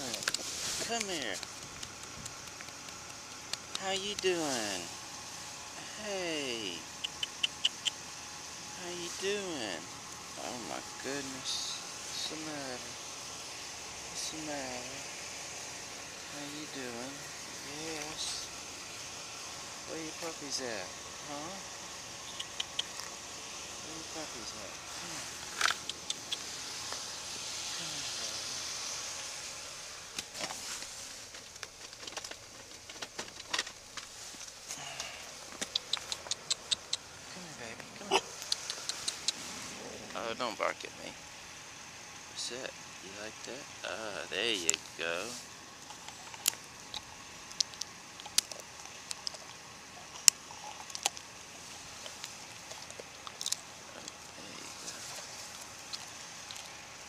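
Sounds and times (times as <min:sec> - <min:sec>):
dog crunching food: 0:00.0 - 0:04.3, 0:22.3 - 0:23.2, 0:25.4 - 0:27.0, 0:45.8 - 0:57.0
clicks and rustles of person moving: 0:30.2 - 0:34.7.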